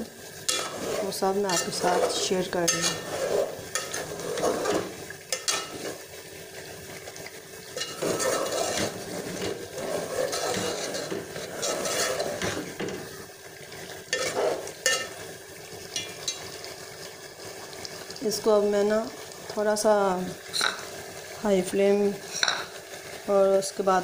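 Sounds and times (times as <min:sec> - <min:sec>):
sizzling in hot oil: 0:00.0 - 0:24.0
spoon scraping metal pot: 0:00.5 - 0:06.0, 0:07.7 - 0:13.1, 0:14.1 - 0:15.2.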